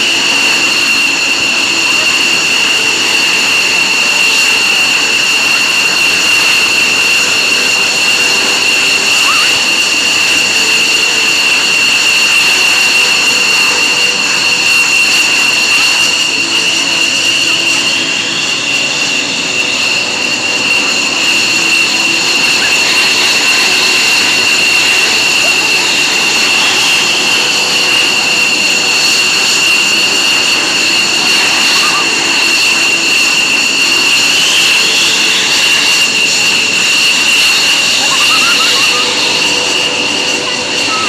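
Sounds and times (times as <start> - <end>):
jet engines whining: 0.0 - 41.0.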